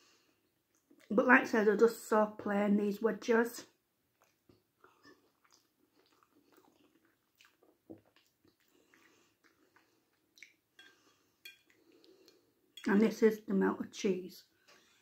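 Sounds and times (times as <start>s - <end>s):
faint chewing of food: 0.0s - 1.1s, 4.1s - 12.8s.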